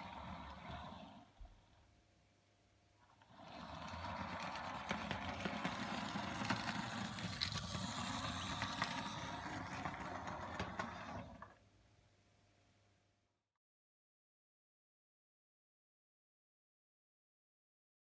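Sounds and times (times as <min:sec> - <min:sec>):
model train wheels clicking on track: 0:00.0 - 0:01.2, 0:03.2 - 0:11.5
model train motor whirring: 0:00.0 - 0:01.4, 0:03.2 - 0:11.5.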